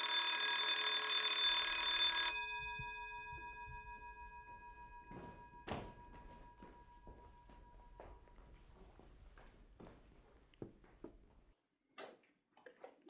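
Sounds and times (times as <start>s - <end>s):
electric bell ringing: 0.0s - 8.0s
soft rustling knocks: 3.3s - 11.5s.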